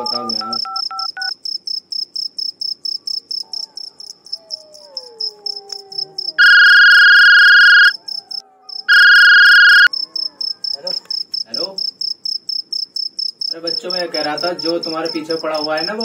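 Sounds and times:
mobile phone ringing: 0:00.0 - 0:01.3, 0:06.4 - 0:08.0, 0:08.9 - 0:09.9
crickets chirping: 0:00.0 - 0:16.0.

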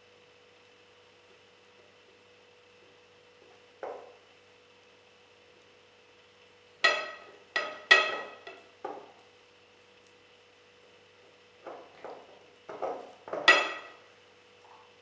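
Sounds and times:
glass jar knocking and clinking: 0:13.4 - 0:14.0.

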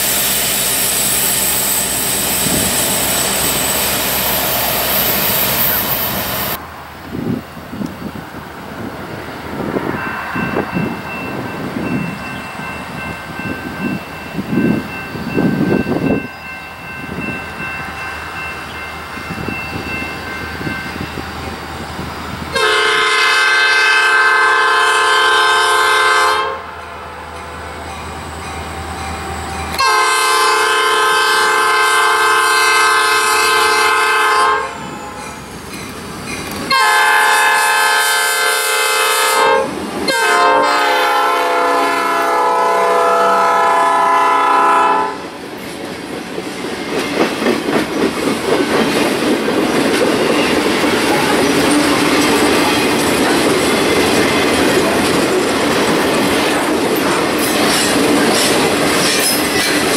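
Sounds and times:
diesel locomotive rumbling: 0:00.0 - 0:59.9
train air horn blasts: 0:22.5 - 0:27.1, 0:29.8 - 0:35.2, 0:36.7 - 0:45.3
train wheels clacking: 0:34.8 - 0:37.7, 0:45.3 - 0:59.9.

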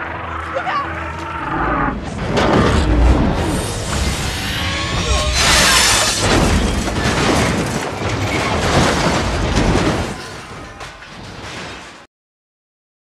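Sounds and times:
deep rumble: 0:00.0 - 0:09.9
loud crashing and flying debris: 0:01.9 - 0:12.1.

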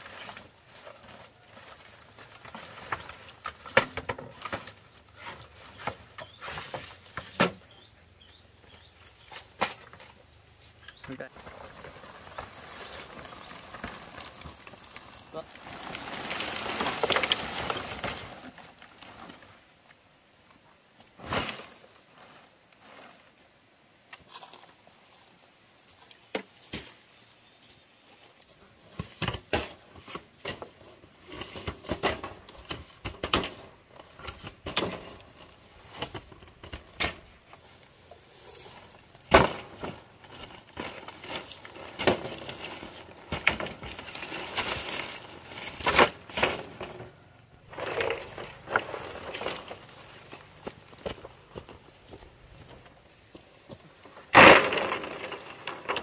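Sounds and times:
dry thatch rustling and crackling: 0:00.0 - 0:07.6, 0:10.9 - 0:20.0, 0:24.2 - 0:56.0.

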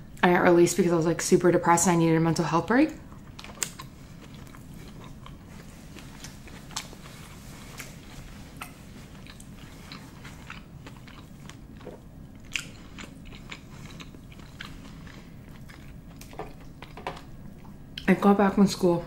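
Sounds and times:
chewing food: 0:03.0 - 0:18.1.

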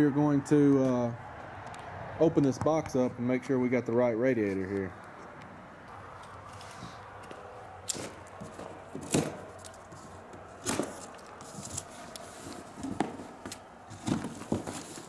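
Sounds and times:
cardboard rustling and scraping: 0:06.5 - 0:15.0
packing straps snapping: 0:07.8 - 0:15.0.

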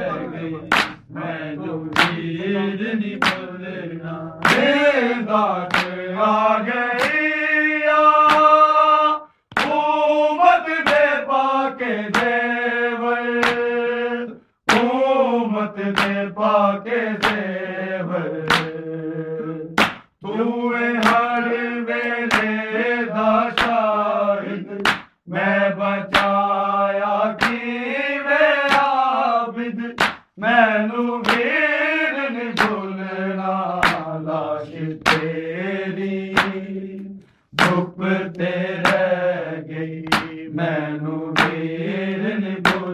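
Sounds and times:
men chanting a lament: 0:00.0 - 0:42.9
hands slapping chest: 0:00.7 - 0:01.0, 0:01.9 - 0:02.3, 0:03.2 - 0:03.5, 0:04.4 - 0:04.7, 0:05.6 - 0:06.1, 0:07.0 - 0:07.2, 0:08.2 - 0:08.6, 0:09.5 - 0:09.8, 0:10.8 - 0:11.1, 0:12.1 - 0:12.4, 0:13.4 - 0:13.7, 0:14.7 - 0:15.0, 0:15.9 - 0:16.2, 0:17.2 - 0:17.5, 0:18.4 - 0:18.8, 0:19.8 - 0:20.2, 0:21.0 - 0:21.3, 0:22.3 - 0:22.6, 0:23.6 - 0:23.8, 0:24.8 - 0:25.2, 0:26.1 - 0:26.4, 0:27.4 - 0:27.6, 0:28.7 - 0:28.9, 0:30.0 - 0:30.3, 0:31.0 - 0:31.5, 0:32.6 - 0:32.8, 0:33.8 - 0:34.2, 0:35.0 - 0:35.4, 0:36.4 - 0:39.2, 0:40.0 - 0:40.4, 0:41.4 - 0:41.7, 0:42.6 - 0:42.9.

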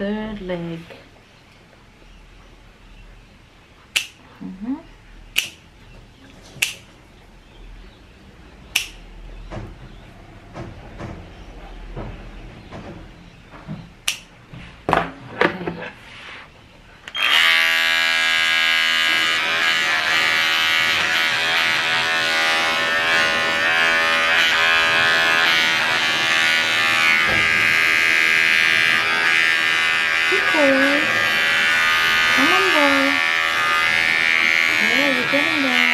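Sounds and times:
sharp clicks: 0:03.9 - 0:04.2, 0:06.6 - 0:06.8, 0:08.7 - 0:09.0, 0:14.0 - 0:14.3
dog clipper buzzing: 0:05.4 - 0:05.6, 0:08.8 - 0:09.0, 0:14.1 - 0:14.3, 0:17.1 - 0:35.9.

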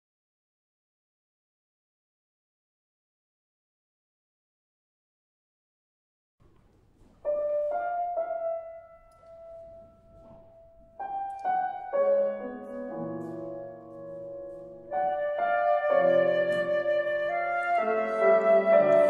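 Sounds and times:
solo piano: 0:06.4 - 0:19.0.

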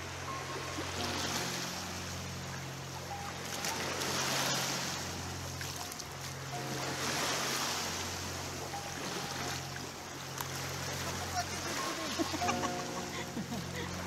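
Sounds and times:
sea waves washing onto beach: 0:00.0 - 0:14.0
steady low hum: 0:00.0 - 0:14.0.

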